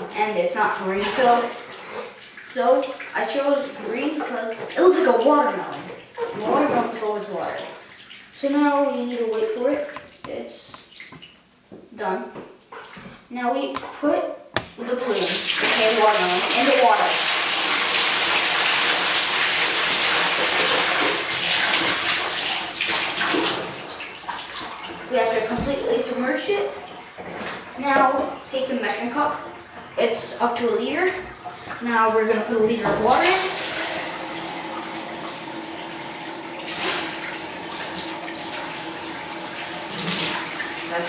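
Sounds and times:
water sloshing: 0.0 - 11.4
water spilling into bathtub: 0.6 - 10.2, 14.8 - 28.3, 32.9 - 41.0.

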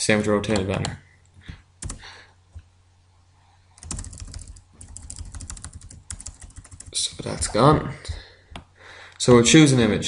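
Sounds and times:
keyboard keys tapping rapidly: 1.8 - 2.0, 3.8 - 7.5.

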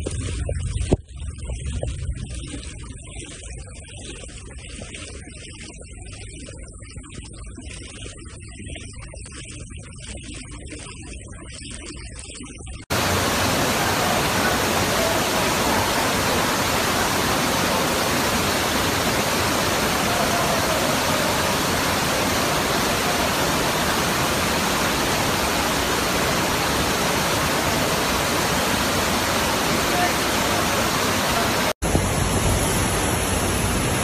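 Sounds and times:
floodwater rushing: 12.9 - 34.0.

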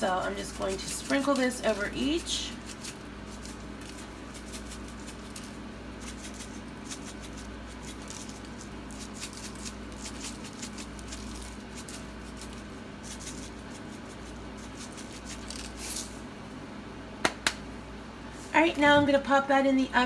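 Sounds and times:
seeds rattling from shaker jar: 0.4 - 16.2.

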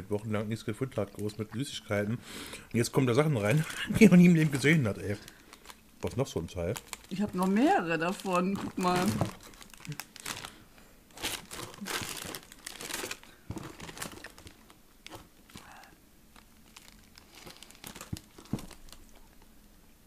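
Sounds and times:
plastic wrapper crinkling: 2.8 - 19.5.

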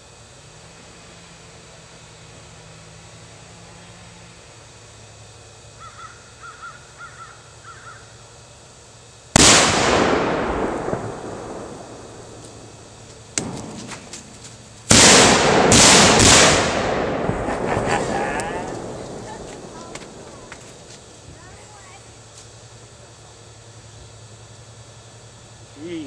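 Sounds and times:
bird calling: 5.8 - 8.2
mortar blasts: 9.4 - 21.1
sharp crack and small pops: 9.4 - 21.2.

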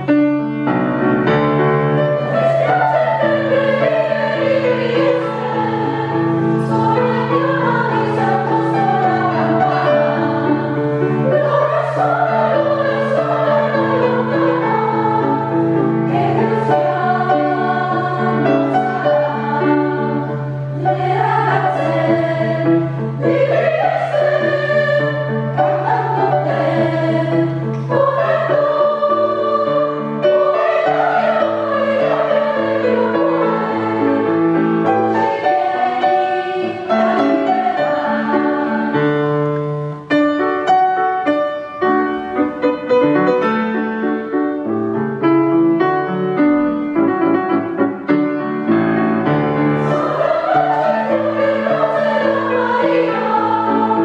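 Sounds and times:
piano accompaniment: 0.0 - 54.0
women's choir singing: 1.3 - 39.4, 49.2 - 54.0.

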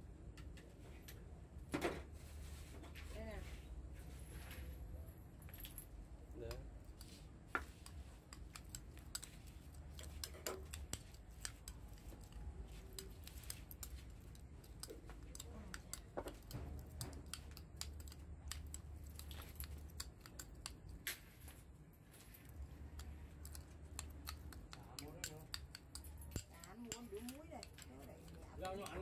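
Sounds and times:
metal spoon stirring sauce in bowl: 6.6 - 21.0, 22.5 - 29.0.

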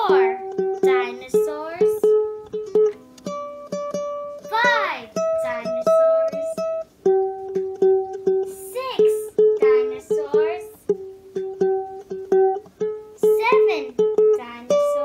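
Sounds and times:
plucked-string tune: 0.0 - 15.0.

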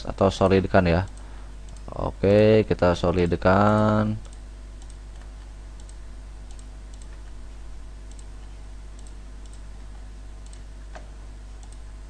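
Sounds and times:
steady low hum: 0.0 - 12.0
computer mouse clicking: 3.2 - 7.4, 8.0 - 8.3, 9.0 - 9.7, 10.4 - 11.9.

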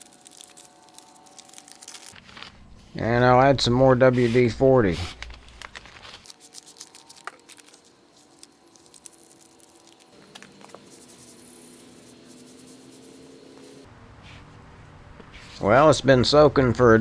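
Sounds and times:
plastic bag crinkling: 0.0 - 2.6, 5.1 - 11.3
faint steady hum: 6.3 - 15.3.

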